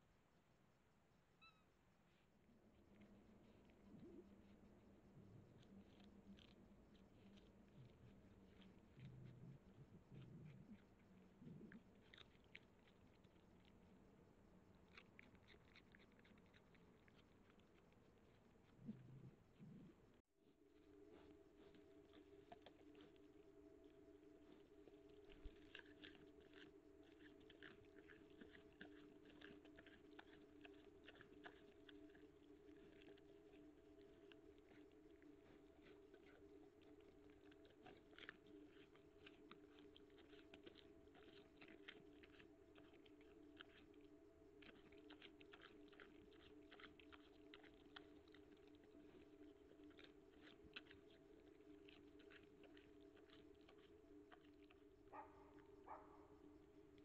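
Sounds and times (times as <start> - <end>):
faint steady hum: 0.0 - 57.0
boar crunching and rooting: 2.1 - 57.0.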